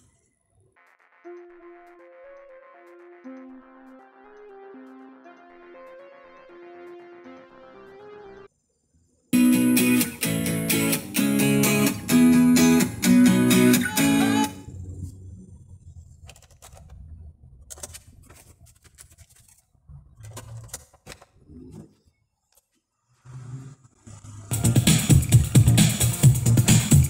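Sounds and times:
dance-pop music from speakers: 0:09.4 - 0:14.6, 0:24.5 - 0:27.0.

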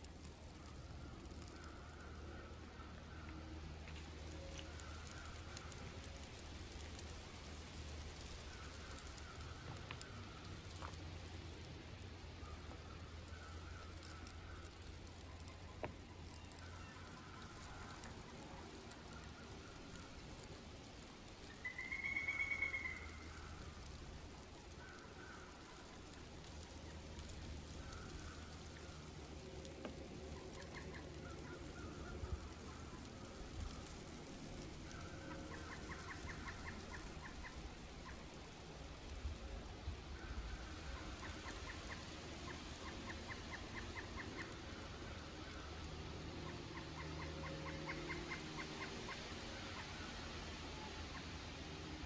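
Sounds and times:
light ticks: 0:00.0 - 0:52.0
faint bird chirps: 0:12.4 - 0:39.5.

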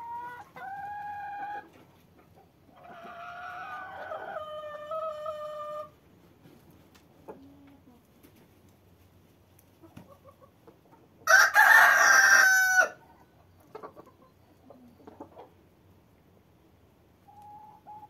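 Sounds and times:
rooster crowing: 0:11.2 - 0:13.0.

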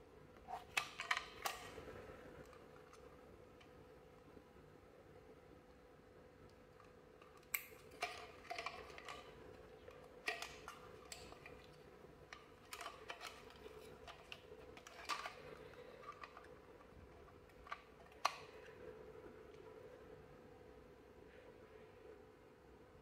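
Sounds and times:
faint steady hum: 0:00.0 - 0:23.0.

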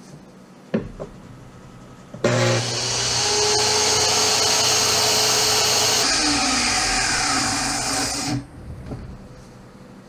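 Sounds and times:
circular saw cutting wood: 0:02.2 - 0:08.5.

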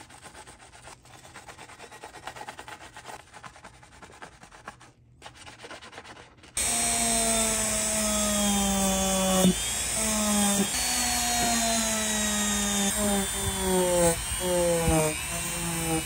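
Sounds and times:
sponge scrubbing: 0:00.0 - 0:06.6.

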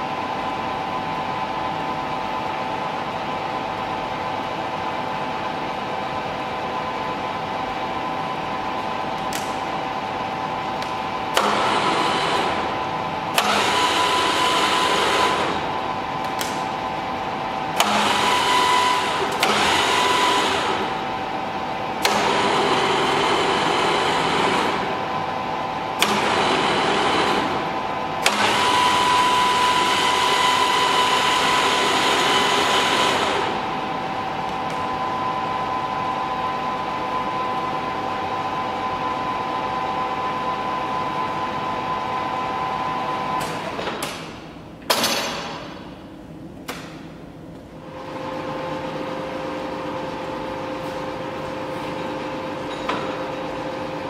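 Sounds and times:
lathe whining: 0:11.1 - 0:16.2, 0:16.8 - 0:36.1.

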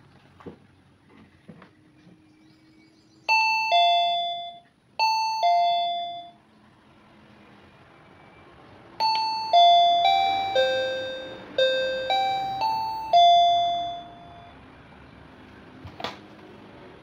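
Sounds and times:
doorbell chime melody: 0:03.3 - 0:06.4, 0:09.0 - 0:14.6.

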